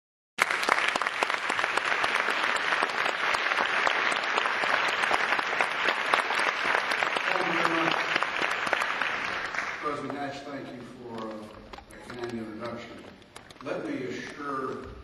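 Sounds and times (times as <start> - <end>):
audience applauding: 0.4 - 11.5.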